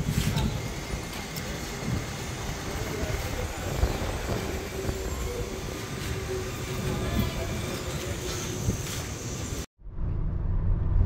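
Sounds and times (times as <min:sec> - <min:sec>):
low rumble: 0:09.8 - 0:11.0.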